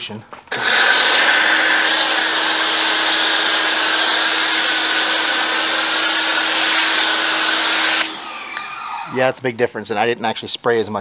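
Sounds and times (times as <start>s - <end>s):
foam cannon spraying: 0.5s - 8.7s.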